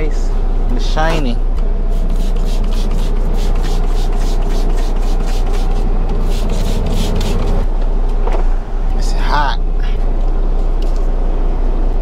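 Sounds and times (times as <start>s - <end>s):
steady low rumble: 0.0s - 12.0s
cloth rubbing on surface: 1.9s - 7.6s.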